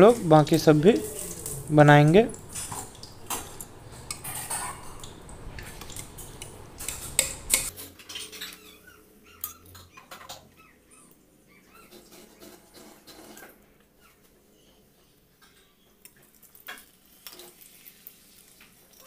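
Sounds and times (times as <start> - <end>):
ladle clinking against steel pots: 2.3 - 8.6.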